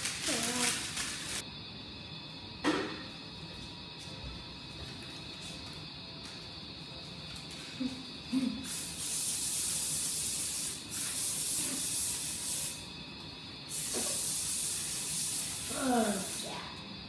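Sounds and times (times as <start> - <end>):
aerosol spray can hissing: 8.4 - 12.9, 13.7 - 16.6.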